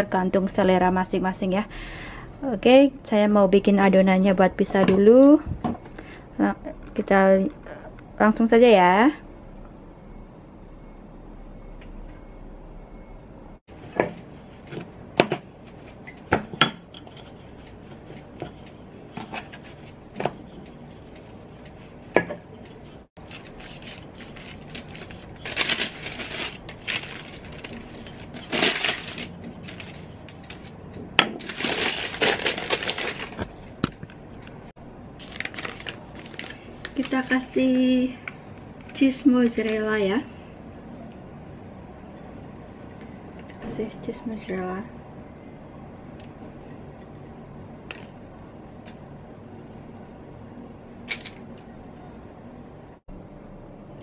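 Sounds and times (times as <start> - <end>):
scraping and rustling: 13.7 - 33.8.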